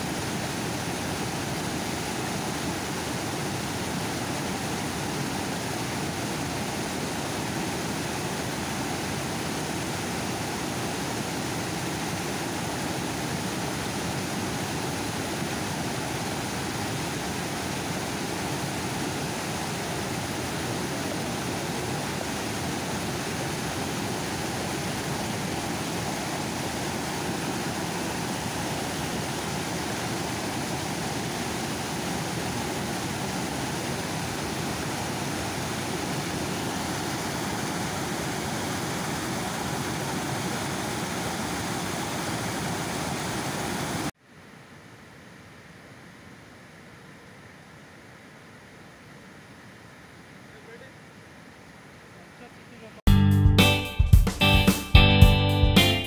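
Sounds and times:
water rushing over a dam: 0.0s - 44.2s.

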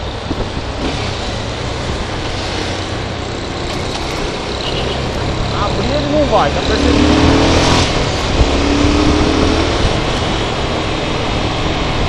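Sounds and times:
wind noise on microphone: 0.0s - 2.3s, 7.2s - 12.0s
traffic: 0.0s - 12.0s.

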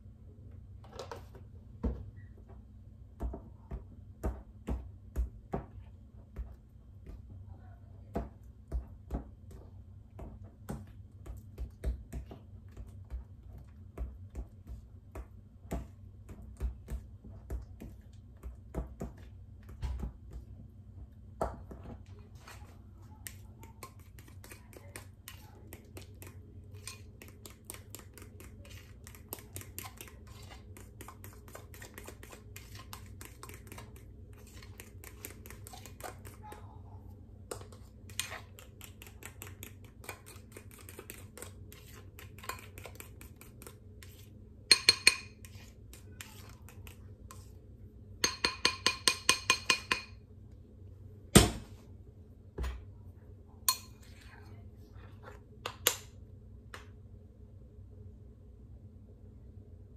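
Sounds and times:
utensil tapping glass bowl: 44.7s - 45.6s, 48.2s - 50.2s.

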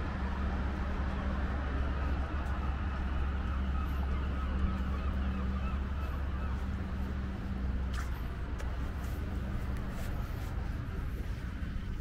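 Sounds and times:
low outdoor rumble and hum: 0.0s - 12.0s
faint bird calls: 2.4s - 8.3s.

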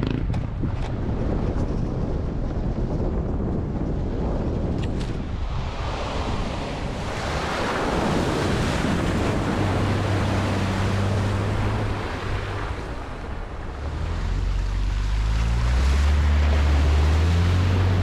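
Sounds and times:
water spraying from tyre: 5.6s - 18.0s
engine low steady hum: 6.9s - 18.0s.

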